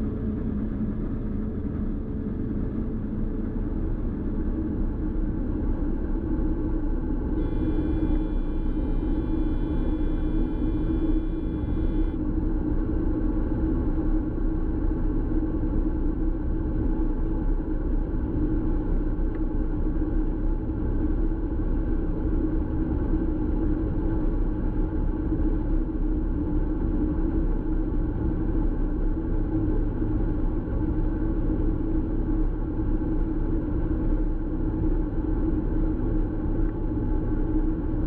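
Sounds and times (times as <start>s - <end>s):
thin high whine: 7.4s - 12.2s.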